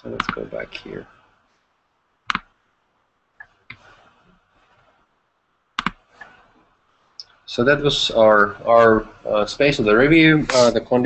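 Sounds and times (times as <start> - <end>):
computer mouse clicks: 2.3 - 2.5, 5.8 - 6.3.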